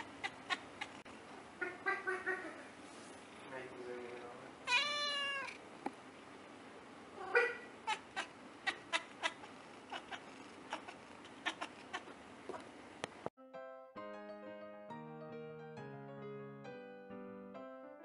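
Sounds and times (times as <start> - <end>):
cat meowing: 4.6 - 5.6, 7.2 - 12.6.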